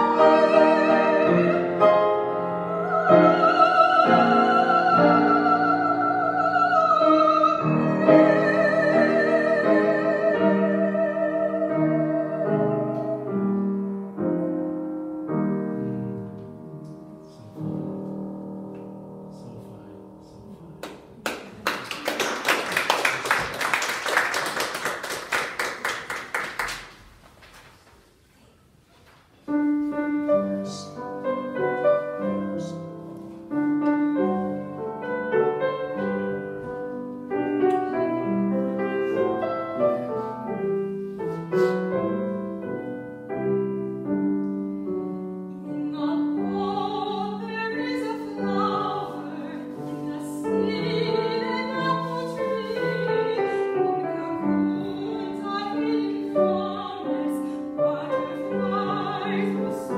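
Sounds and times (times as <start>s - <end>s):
soprano singing with vibrato: 0.0s - 13.5s, 45.6s - 59.9s
piano playing: 0.0s - 21.2s, 29.5s - 59.9s
audience applauding: 20.8s - 27.0s.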